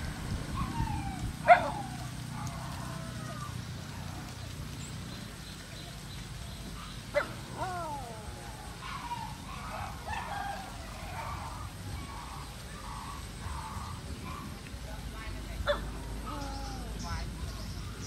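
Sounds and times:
dog yelping: 0.5 - 4.1, 6.8 - 14.6.

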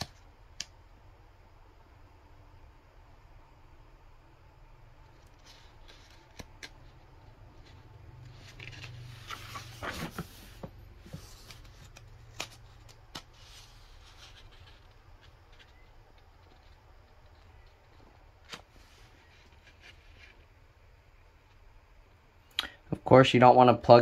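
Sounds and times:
paper pages rustling: 5.1 - 20.4.

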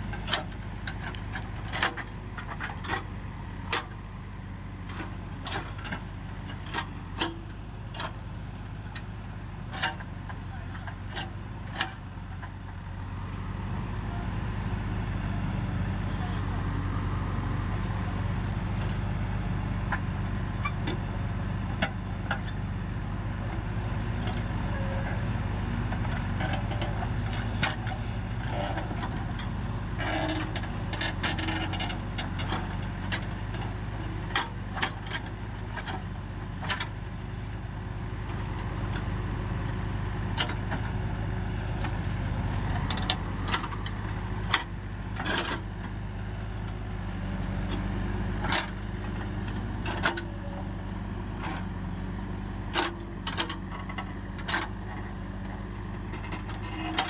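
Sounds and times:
diesel engines running: 0.0 - 57.0
backhoe bucket clanking: 26.3 - 32.8.

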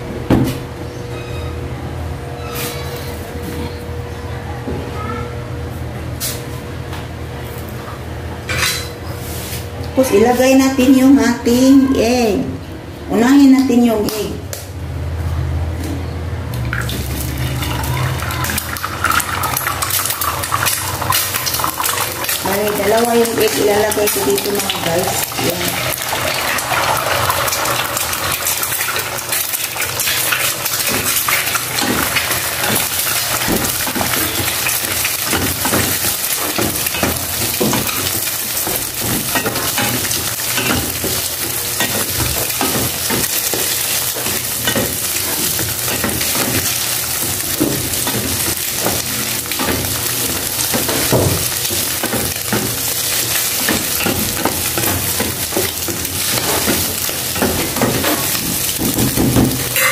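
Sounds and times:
eggs sizzling in frying pan: 16.6 - 59.9.

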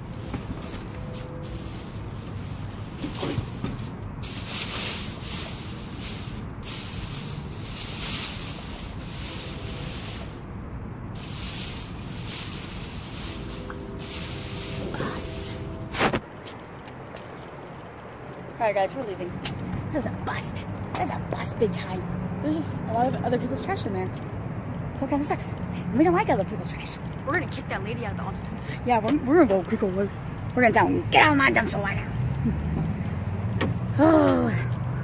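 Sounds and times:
plastic trash bags rustling: 0.1 - 16.4.

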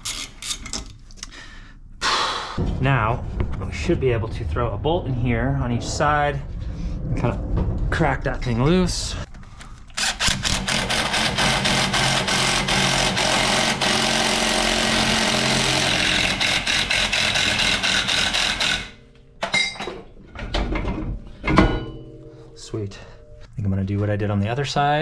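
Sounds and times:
impact wrench hammering: 10.2 - 19.8.

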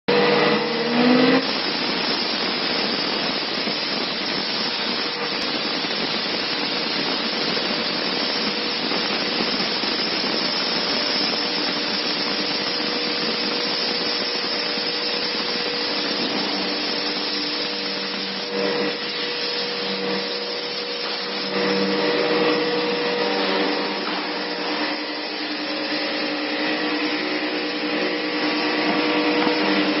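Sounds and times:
router spindle whirring: 0.1 - 2.3, 3.4 - 30.0.

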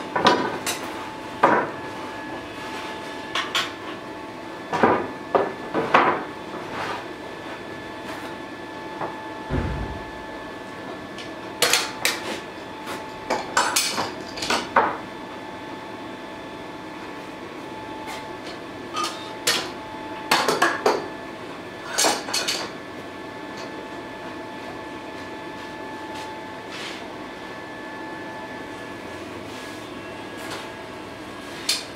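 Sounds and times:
workshop hum: 0.0 - 31.9
dull thump: 9.5 - 10.3.

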